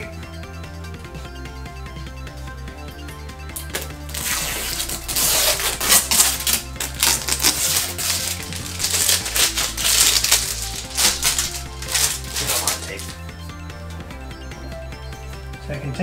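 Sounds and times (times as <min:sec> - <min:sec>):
background music with bass: 0:00.0 - 0:16.0
packing tape peeling off plastic: 0:03.6 - 0:13.2.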